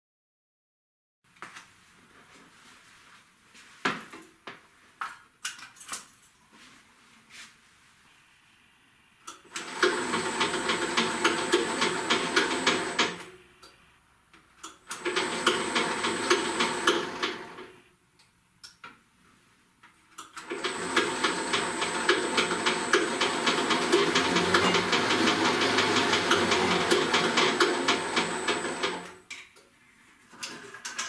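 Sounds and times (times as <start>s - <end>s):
dough mixer whining and ticking: 9.6s - 13.2s, 14.9s - 17.6s, 20.4s - 29.2s.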